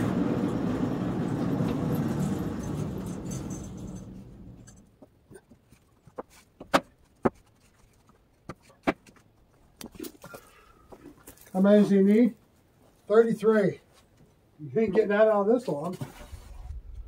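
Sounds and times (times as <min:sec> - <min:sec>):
band sawmill running: 0:00.0 - 0:04.8
wooden boards knocking: 0:06.1 - 0:07.5.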